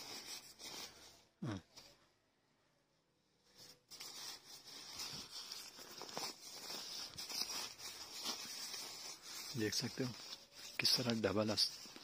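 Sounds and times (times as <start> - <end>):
nylon fabric rustling: 3.6 - 12.0.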